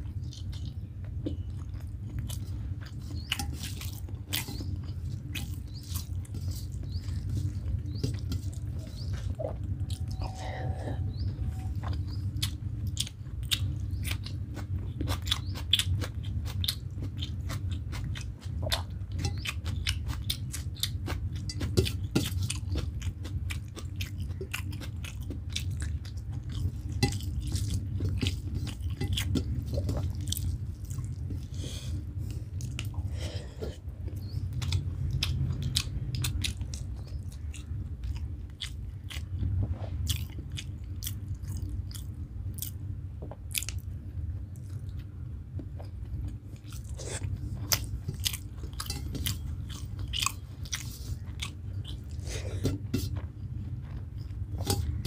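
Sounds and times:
low hum: 0.0 - 15.5
person chewing with mouth smacks: 0.0 - 55.0.

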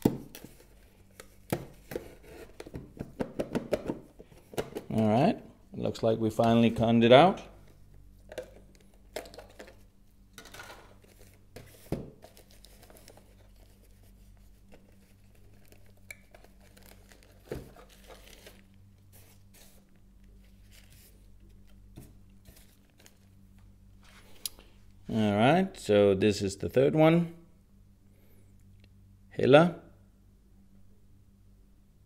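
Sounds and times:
plastic film crinkling: 12.3 - 18.7.

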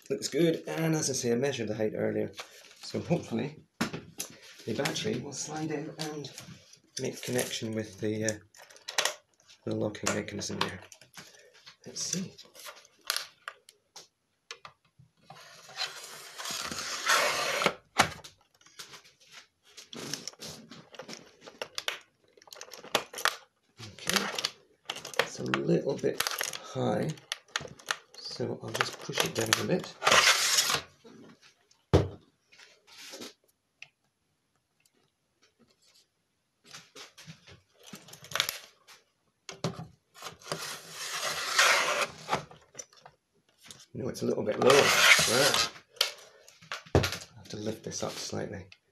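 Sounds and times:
battery case scraping slide: 15.5 - 17.8, 40.5 - 42.4.

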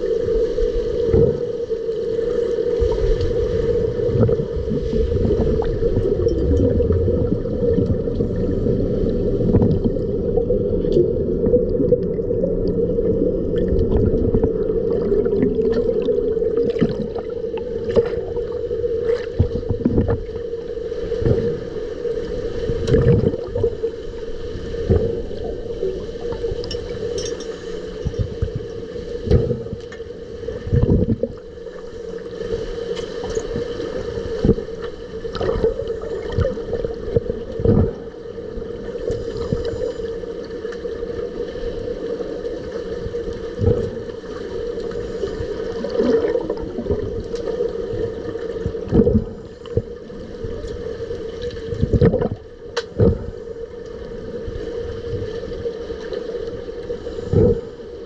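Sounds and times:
muffled underwater hum: 0.0 - 58.0
bubbling: 0.9 - 21.8, 22.7 - 24.2, 30.6 - 31.5, 33.2 - 39.9, 42.6 - 54.3.

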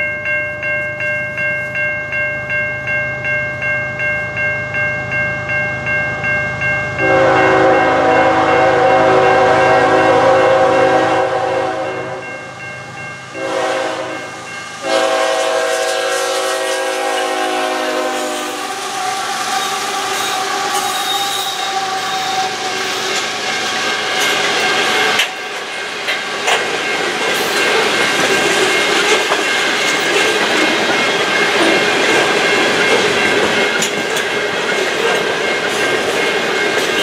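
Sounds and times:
crossing warning bell ringing: 0.0 - 37.0
locomotive air horn blasts: 7.0 - 12.3, 13.4 - 19.0.

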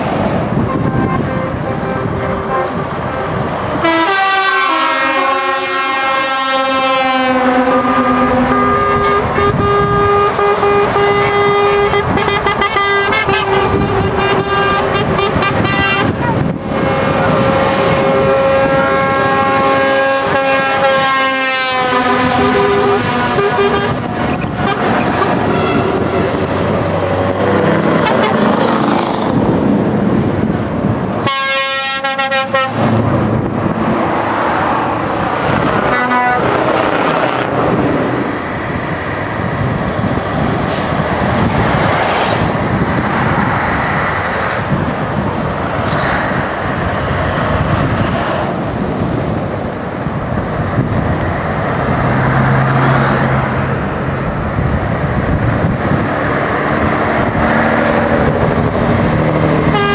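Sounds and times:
lorries passing: 0.0 - 59.9
truck air horn blasts: 0.6 - 26.5, 27.9 - 28.7, 31.2 - 33.0, 35.8 - 36.7, 59.6 - 59.9.

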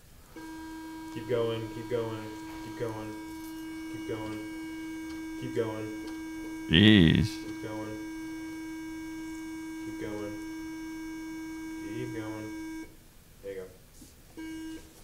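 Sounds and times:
breath-test instrument humming: 0.2 - 12.9
faint short voice-like sounds: 6.7 - 7.4.

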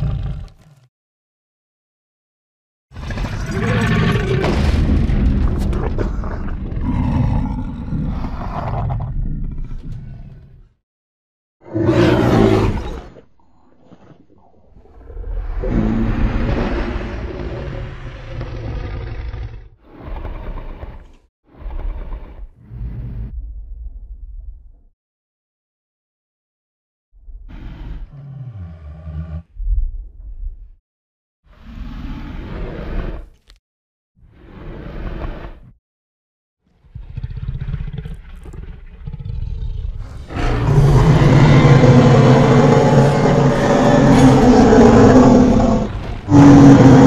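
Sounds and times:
deep monster roar: 3.0 - 10.7, 11.6 - 13.3, 14.8 - 23.4, 27.5 - 29.5, 36.8 - 47.0
low rumbling growl: 3.0 - 10.8, 14.3 - 24.9, 36.8 - 47.0.

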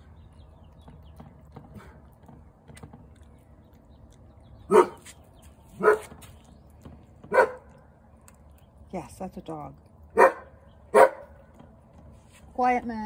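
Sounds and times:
dog barking: 4.7 - 5.0, 5.8 - 6.1, 7.3 - 7.7, 10.2 - 11.4.

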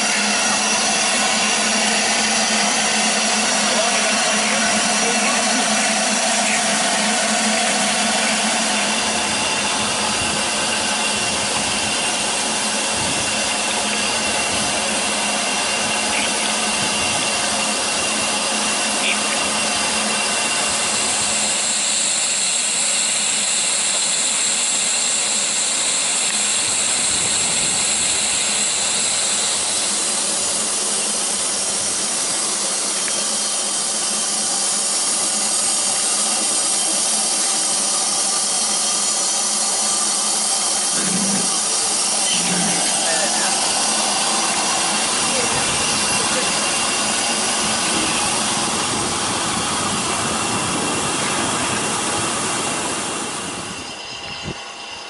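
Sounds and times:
steam train hissing: 0.0 - 55.0.

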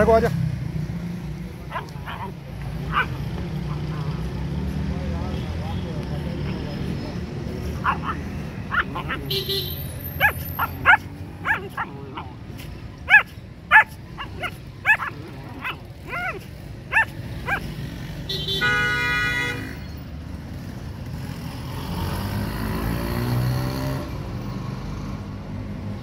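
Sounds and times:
puppies barking and yipping: 1.7 - 4.3, 7.6 - 17.9.

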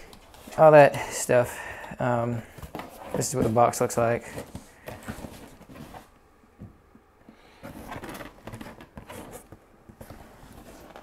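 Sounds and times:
cardboard box scraping and rubbing: 7.6 - 11.0.

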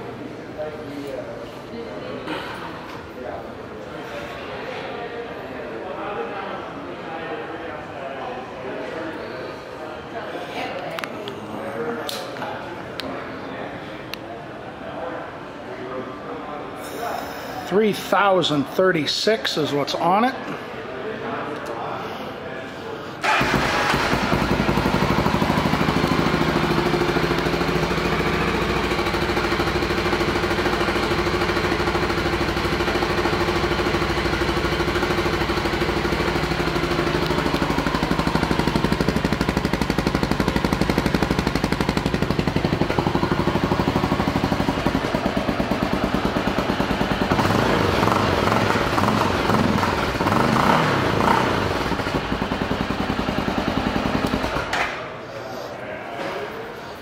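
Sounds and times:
motorcycle engine idling: 23.2 - 54.7.

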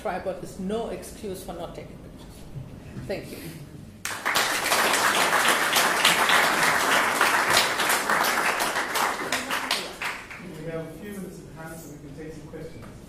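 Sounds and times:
audience applauding: 4.0 - 10.4.

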